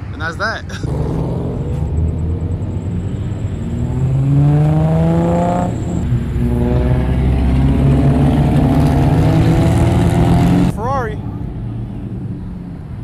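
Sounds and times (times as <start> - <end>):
car engine accelerating: 0.7 - 10.8.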